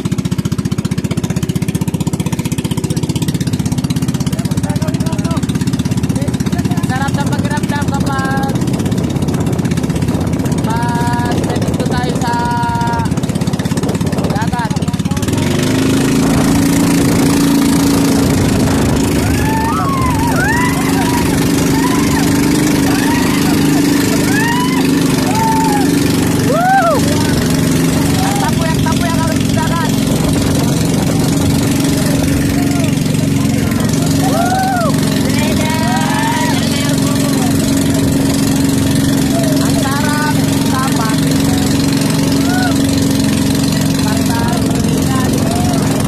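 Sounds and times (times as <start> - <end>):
small boat engine pulsing: 0.0 - 46.0
wind rushing: 15.6 - 33.9.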